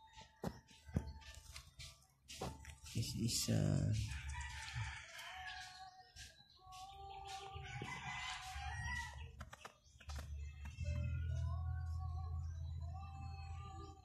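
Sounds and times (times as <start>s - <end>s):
faint rooster crowing: 4.0s - 6.3s, 7.3s - 9.5s.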